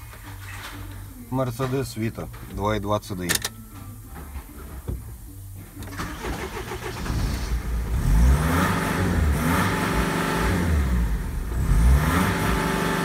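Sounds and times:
diesel engine running: 0:05.3 - 0:13.0.

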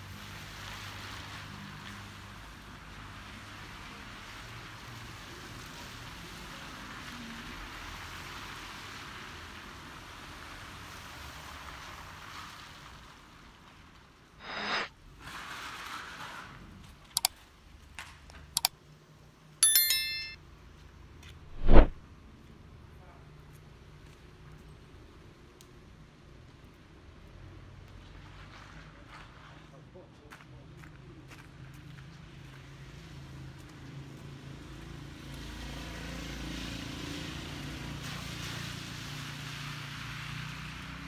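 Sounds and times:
tyres hissing on wet street: 0:00.0 - 0:14.4, 0:15.2 - 0:16.9, 0:31.9 - 0:41.0
metallic ring: 0:14.4 - 0:14.9, 0:19.6 - 0:20.4.

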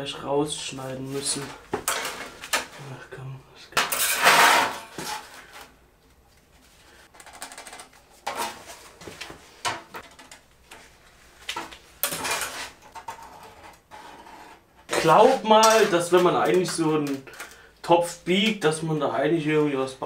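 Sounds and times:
metallic clattering and scraping: 0:01.2 - 0:02.8, 0:03.8 - 0:05.7, 0:12.0 - 0:17.5
steel sheet rattling: 0:03.8 - 0:05.3.

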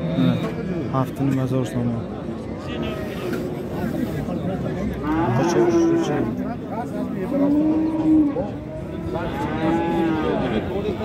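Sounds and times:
cattle mooing: 0:05.0 - 0:06.4, 0:07.4 - 0:08.5, 0:09.1 - 0:10.6.

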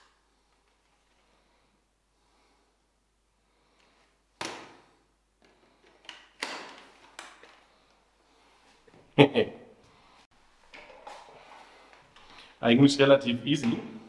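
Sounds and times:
plastic parts clicking into place: 0:05.4 - 0:07.7.

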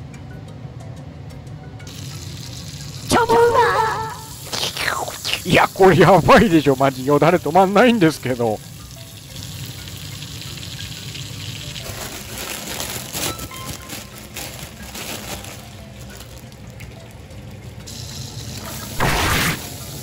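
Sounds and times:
butter sizzling in a frying pan: 0:08.7 - 0:12.3.

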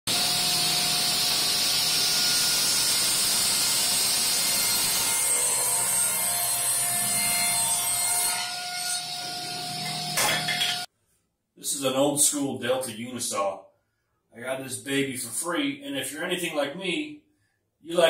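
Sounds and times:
table saw ripping a board: 0:00.1 - 0:10.9.

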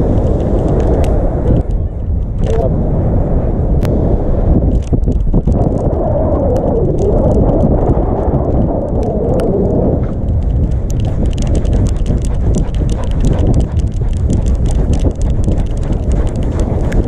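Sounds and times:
scattered clicks: 0:00.0 - 0:02.7, 0:04.6 - 0:17.0
heavy wind: 0:00.0 - 0:17.0
handling rumble: 0:04.6 - 0:17.0.

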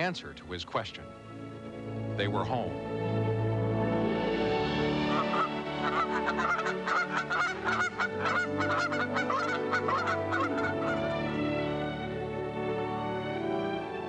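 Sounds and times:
soft background music: 0:00.0 - 0:14.0
geese honking: 0:05.0 - 0:12.0.

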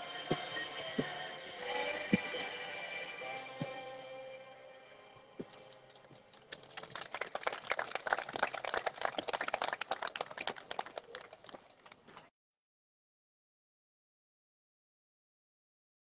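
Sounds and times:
faint music: 0:00.0 - 0:07.4
crowd clapping: 0:06.4 - 0:12.3.

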